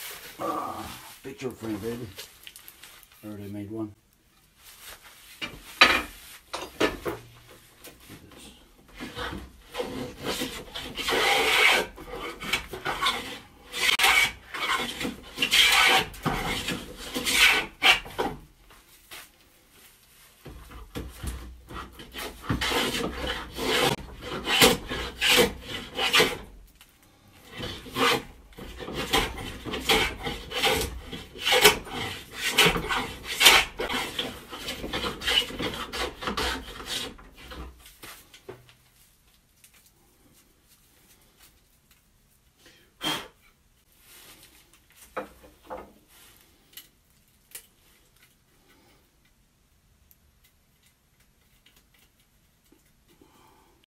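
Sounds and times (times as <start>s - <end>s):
hand plane shaving wood: 8.9s - 18.4s, 20.7s - 26.6s, 27.4s - 37.8s.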